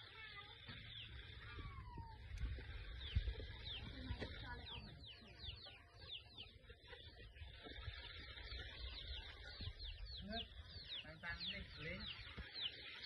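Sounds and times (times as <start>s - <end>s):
small birds chirping: 0.0s - 13.0s
steady low rumble: 0.9s - 5.5s.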